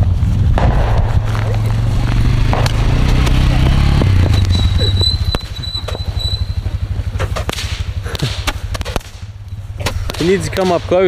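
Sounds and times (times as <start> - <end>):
motorcycle engine passing: 0.0 - 11.0
firework pops: 7.2 - 10.7.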